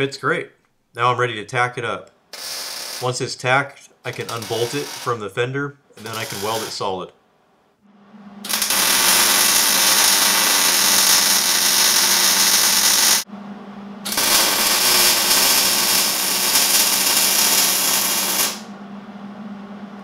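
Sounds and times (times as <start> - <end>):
welding arc hissing: 2.4 - 3.2, 4.1 - 5.2, 6.0 - 6.9, 8.5 - 13.3, 14.1 - 18.7
low hum: 7.6 - 10.3, 12.8 - 20.0.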